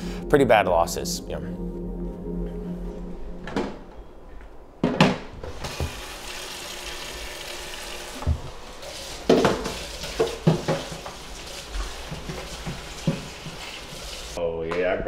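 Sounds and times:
dishes knocking and clinking: 0:09.2 - 0:13.8.

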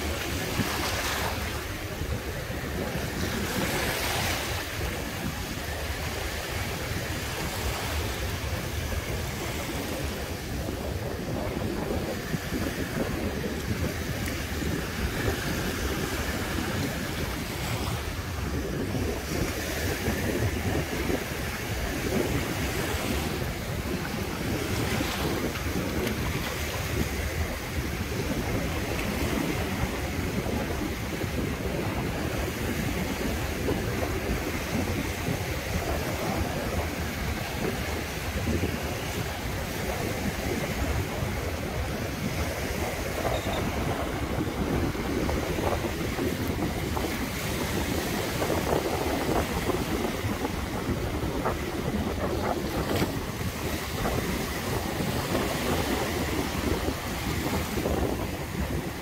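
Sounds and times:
sea surf washing onto beach: 0:00.0 - 0:59.0
wind buffeting microphone: 0:00.0 - 0:59.0.

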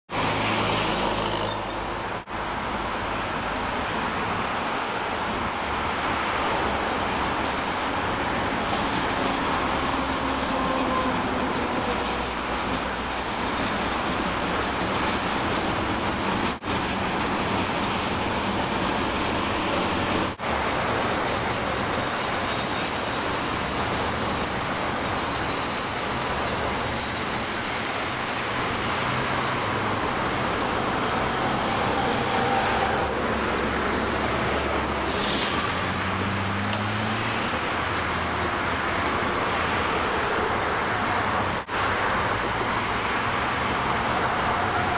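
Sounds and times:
expressway traffic noise: 0:00.1 - 0:44.9
train rolling across steel bridge: 0:00.2 - 0:44.9
high thin wheel squeal: 0:20.8 - 0:29.8.

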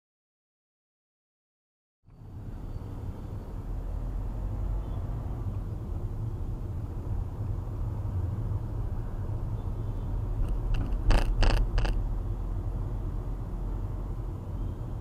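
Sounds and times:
car driving rumble: 0:10.2 - 0:12.6
sharp knocks: 0:10.4 - 0:12.0.

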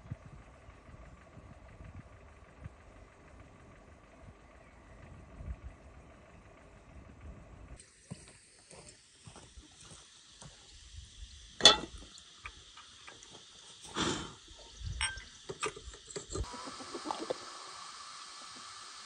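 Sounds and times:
faint steady hiss: 0:07.8 - 0:19.0.

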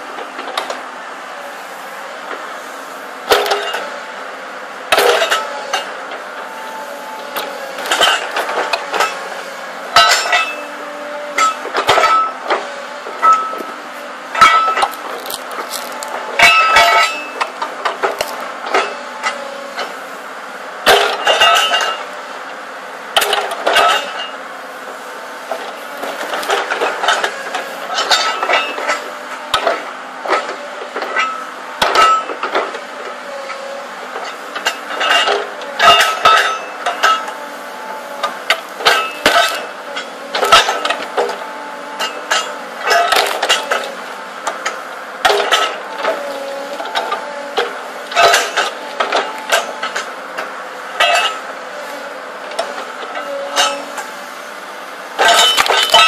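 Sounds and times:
excavator engine running: 0:00.0 - 0:56.0
hydraulic splitter clanking on metal: 0:03.2 - 0:04.0, 0:04.9 - 0:20.0, 0:20.8 - 0:22.2, 0:23.1 - 0:24.4, 0:25.4 - 0:54.1, 0:55.1 - 0:56.0
wood cracking: 0:14.8 - 0:16.2, 0:18.1 - 0:18.5.

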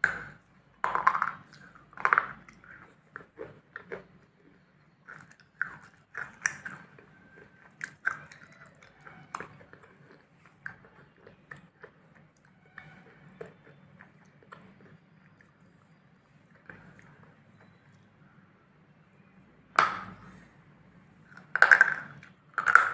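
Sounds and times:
close-up chewing crunchy food: 0:00.0 - 0:18.1.

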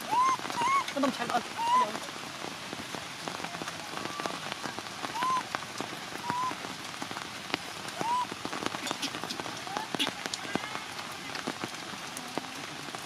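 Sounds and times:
heavy rain on leaves: 0:00.0 - 0:13.0
baby monkey crying: 0:00.1 - 0:00.9, 0:01.6 - 0:01.9.

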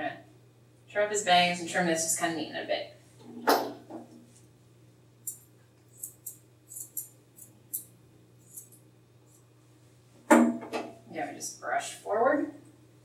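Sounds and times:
scissors snipping hair: 0:06.0 - 0:08.8.

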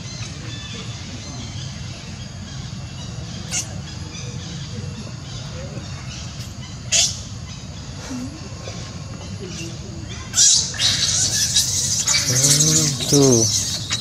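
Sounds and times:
low background noise: 0:00.0 - 0:14.0
young macaques squeaking: 0:03.4 - 0:03.8, 0:06.9 - 0:07.4, 0:09.5 - 0:14.0.

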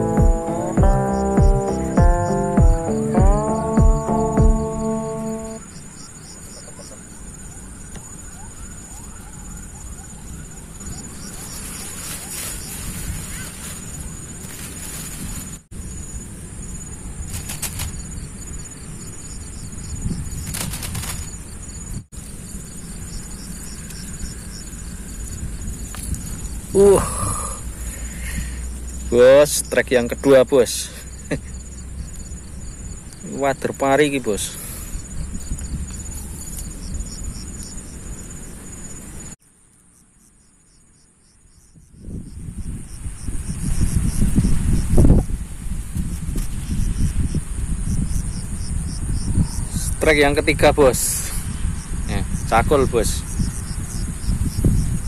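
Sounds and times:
insects chirping: 0:00.0 - 0:55.0
rustles: 0:06.4 - 0:29.2, 0:34.6 - 0:40.2, 0:43.0 - 0:48.6.

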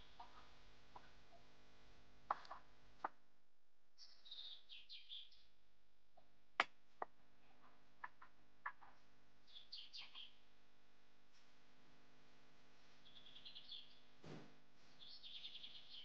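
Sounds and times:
small bird chirping: 0:04.0 - 0:05.5, 0:09.5 - 0:10.4, 0:13.0 - 0:14.1, 0:15.0 - 0:16.0.

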